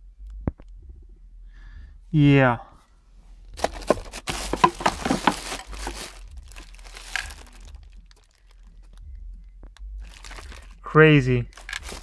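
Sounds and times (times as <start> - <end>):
plastic bags crinkling: 3.6 - 9.0, 10.0 - 10.8, 11.5 - 12.0.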